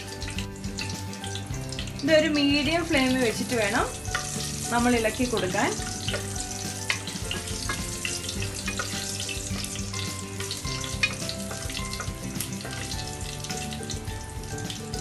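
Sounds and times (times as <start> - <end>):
spices sizzling in hot oil: 0.0 - 15.0.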